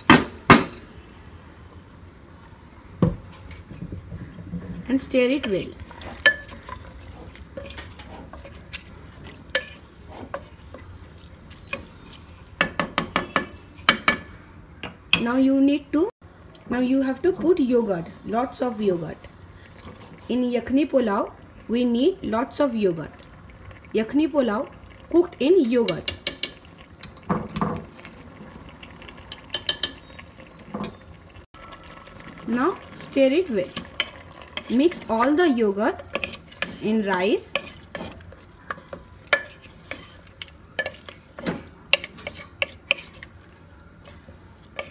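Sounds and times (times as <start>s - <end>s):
wooden spoon stirring in pot: 3.0s - 14.2s, 16.6s - 21.5s, 24.6s - 44.9s
spoon knocking against pot: 12.6s - 15.3s, 25.8s - 26.6s, 29.4s - 30.0s.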